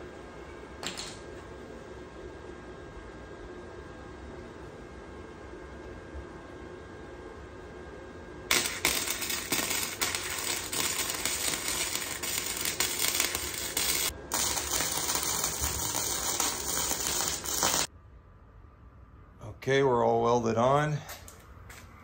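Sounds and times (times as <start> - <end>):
arc welder crackling and sizzling: 8.5 - 17.9.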